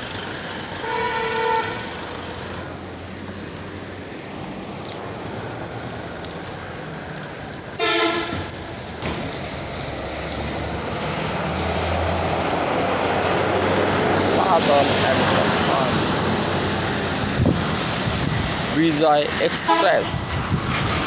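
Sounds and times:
traffic on wet street: 0.0 - 21.0
vehicle tyres on wet road: 0.0 - 21.0
vehicle horn blast: 0.8 - 1.8, 7.8 - 8.4.

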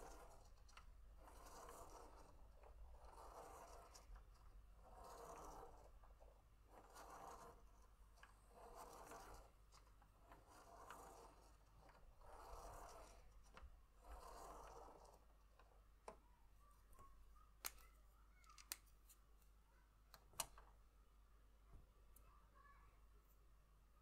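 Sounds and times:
pen scratching on paper: 0.0 - 6.0, 6.7 - 9.6, 10.4 - 15.3
light plastic clicks: 17.6 - 18.9.

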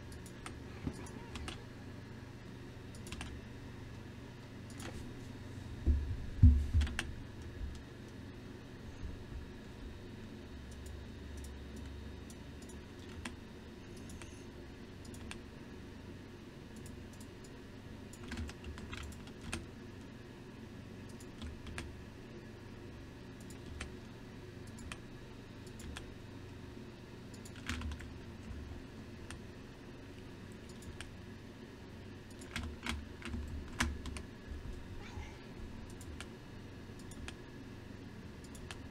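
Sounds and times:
steady low hum: 0.0 - 38.9
keyboard keys clicking: 2.9 - 3.3, 6.8 - 7.1, 18.1 - 19.6, 27.3 - 28.1, 32.3 - 34.2.

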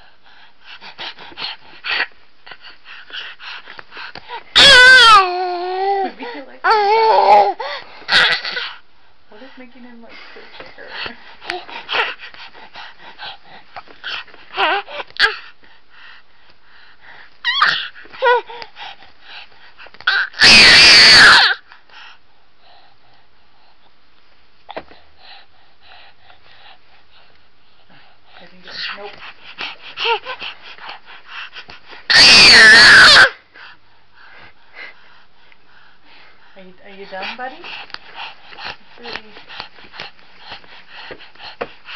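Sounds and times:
infant breathy huffs: 0.0 - 4.6, 5.2 - 20.4, 21.4 - 24.0, 24.6 - 32.2, 33.2 - 41.9
baby screaming and squealing: 4.5 - 6.1, 6.7 - 8.7, 17.4 - 18.4, 20.1 - 21.6, 32.1 - 33.4
faint breathing: 7.5 - 20.0, 21.6 - 32.1, 33.4 - 41.9.

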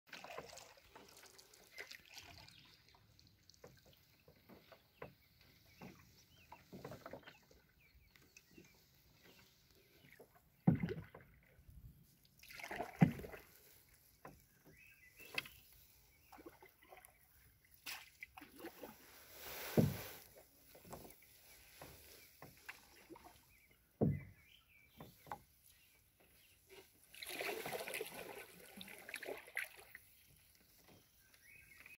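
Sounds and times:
water dripping from paddle: 0.1 - 18.9
paddle splashing: 0.1 - 31.9
canoe thumps: 10.6 - 11.4, 19.7 - 21.1, 24.0 - 24.4.

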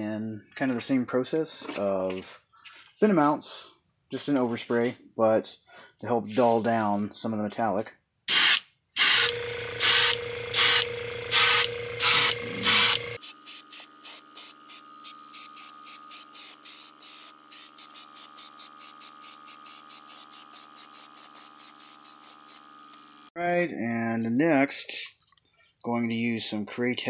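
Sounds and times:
airbrush spraying hissing bursts: 8.3 - 23.3
compressor humming: 9.0 - 23.3.

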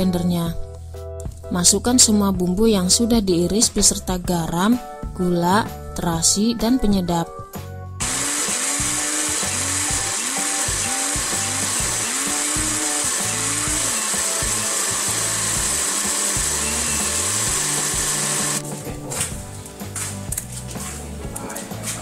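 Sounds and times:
blender grinding paste: 8.0 - 18.6.

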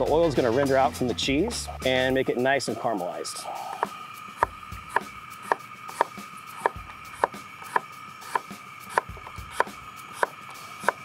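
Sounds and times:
knife slicing apple on board: 3.8 - 11.0.

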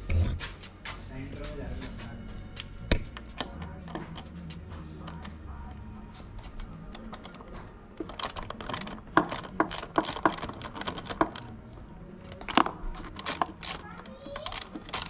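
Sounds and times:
hex-key screwdriver clicking on metal: 2.6 - 4.3, 6.6 - 15.0.

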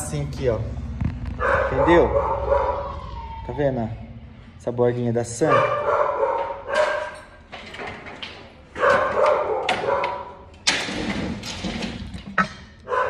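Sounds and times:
dog barking: 1.4 - 3.0, 5.4 - 7.3, 8.8 - 10.4.

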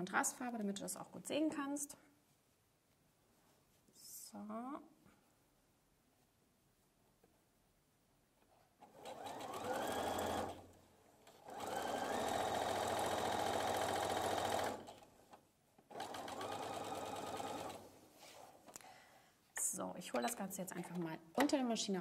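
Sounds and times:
sewing machine stitching: 8.8 - 15.1, 15.9 - 17.9.

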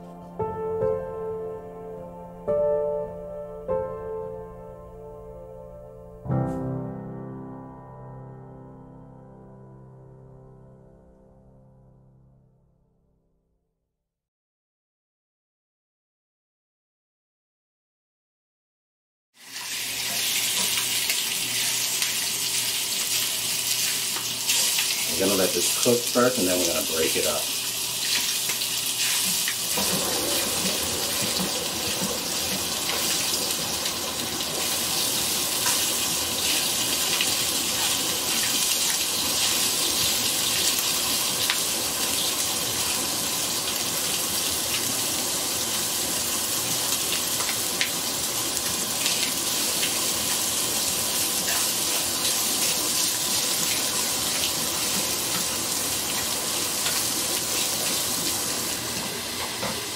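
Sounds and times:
meat sizzling in a frying pan: 19.4 - 59.9.

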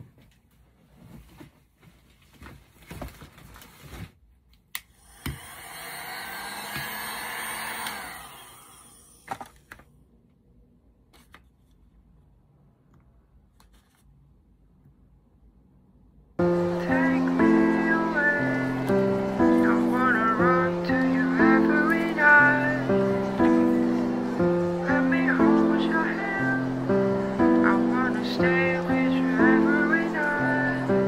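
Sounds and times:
heat gun blowing: 4.9 - 9.4.

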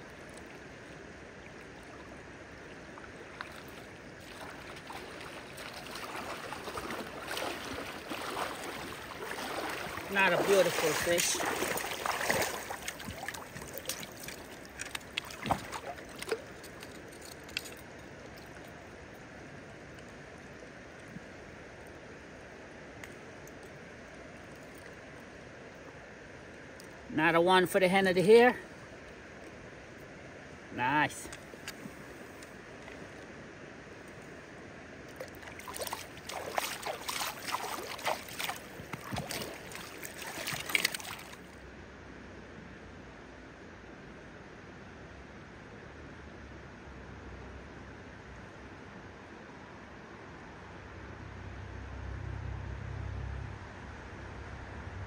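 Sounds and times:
river running over stones: 0.0 - 41.8
water splashes and knocks: 1.4 - 18.8, 35.1 - 41.5.

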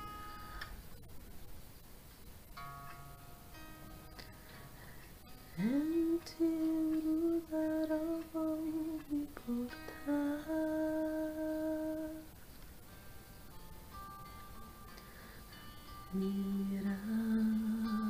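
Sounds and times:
quiet electric guitar: 2.1 - 18.0
woman singing long notes: 5.6 - 12.3.

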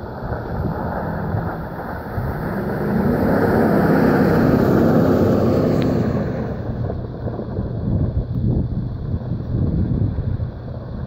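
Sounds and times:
pickup truck engine driving past: 0.0 - 7.5.

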